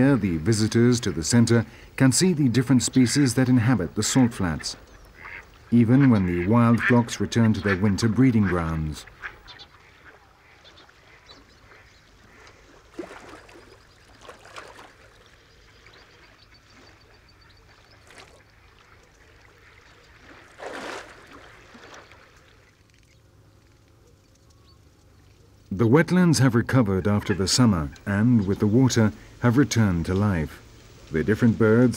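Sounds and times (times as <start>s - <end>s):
mallard ducks quacking: 2.6s - 12.8s, 26.7s - 28.9s.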